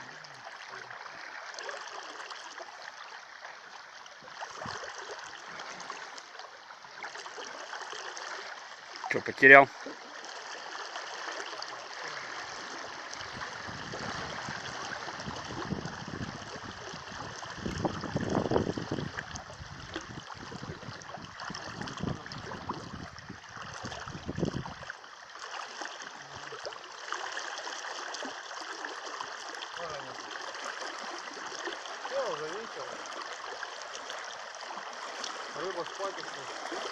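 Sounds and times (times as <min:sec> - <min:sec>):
river running over riffles: 0:00.0 - 0:36.9
person wading sloshing: 0:19.0 - 0:36.9.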